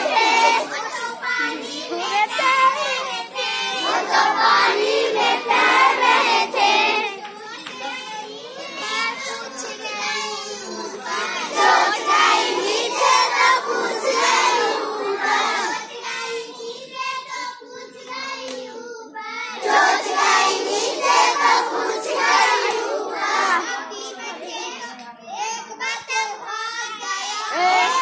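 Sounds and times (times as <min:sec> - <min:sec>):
children singing in unison: 0:00.0 - 0:28.0.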